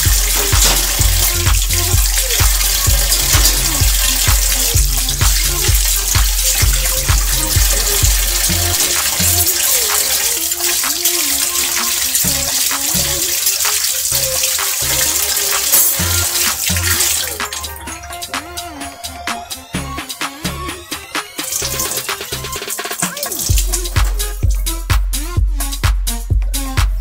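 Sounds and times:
tap water splashing into steel sink: 0.0s - 17.8s, 21.4s - 24.3s
hands rinsing under water: 0.0s - 20.0s, 21.0s - 24.6s
background music with steady beat: 0.0s - 27.0s.

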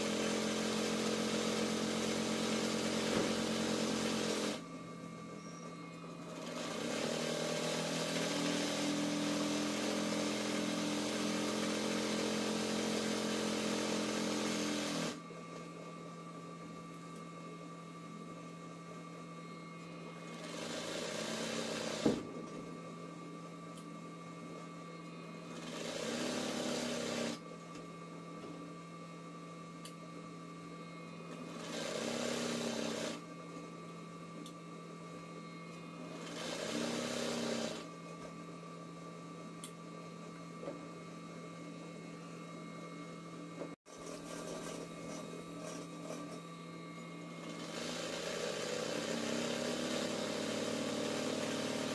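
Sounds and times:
sewing machine stitching: 0.0s - 4.6s, 6.2s - 15.2s, 20.3s - 22.1s, 25.5s - 27.4s, 31.4s - 33.2s, 36.1s - 37.9s, 47.4s - 51.9s.

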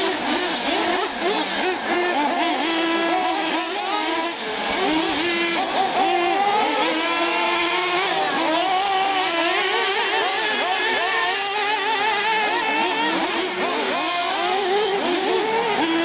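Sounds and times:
small engines revving and whining: 0.0s - 16.0s.

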